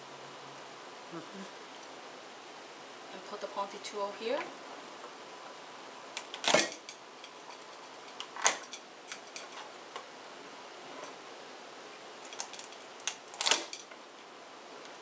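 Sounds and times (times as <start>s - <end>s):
sharp shell cracks: 6.2s - 9.6s, 12.3s - 13.9s.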